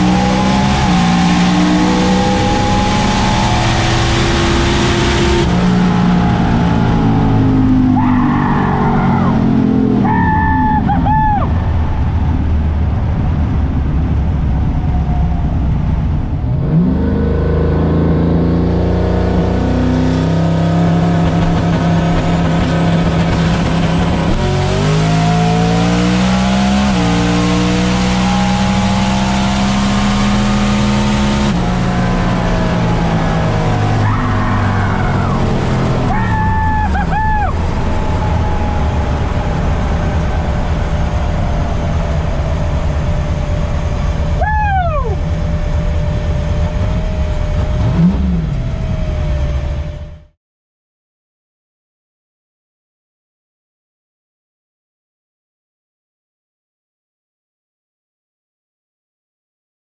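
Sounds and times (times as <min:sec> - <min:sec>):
car engine revving from inside cabin: 0:00.0 - 0:07.7, 0:23.7 - 0:36.0, 0:45.5 - 0:50.0.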